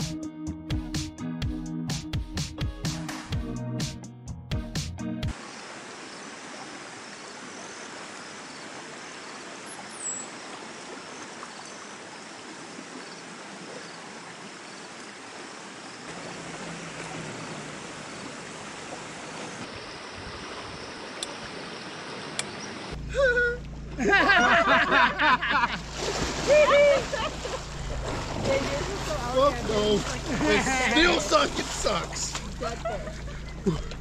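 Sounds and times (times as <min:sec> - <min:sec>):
stream running over rocks: 0:05.3 - 0:23.0, 0:25.5 - 0:34.0.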